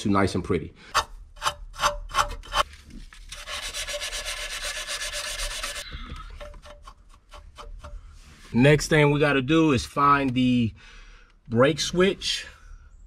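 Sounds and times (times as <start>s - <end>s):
sandpaper scuffing metal: 1.4s - 5.8s.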